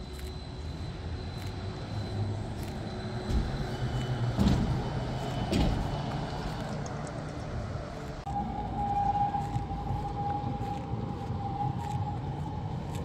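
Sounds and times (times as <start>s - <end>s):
trolleybus driving past humming: 0.0s - 13.0s
bus bumping: 3.0s - 9.3s.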